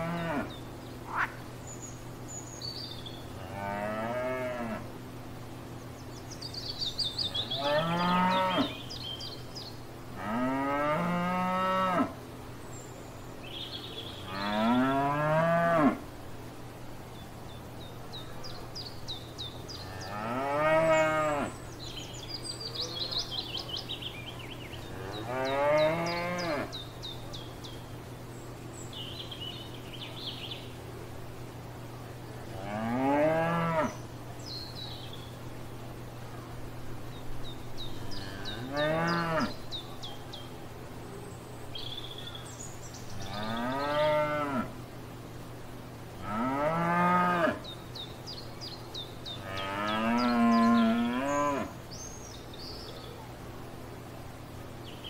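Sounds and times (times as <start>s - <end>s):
cows mooing: 3.4s - 4.9s, 7.5s - 8.7s, 10.2s - 12.1s, 14.3s - 16.0s, 19.8s - 21.5s, 24.9s - 26.7s, 38.1s - 39.6s, 43.2s - 44.7s, 46.2s - 47.6s, 49.4s - 51.7s.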